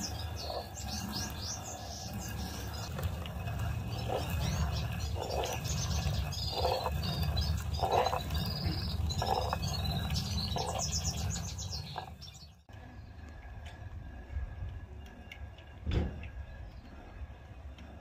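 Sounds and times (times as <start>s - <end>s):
stone quern grinding: 0.0s - 12.6s
birds chirping: 0.0s - 13.8s.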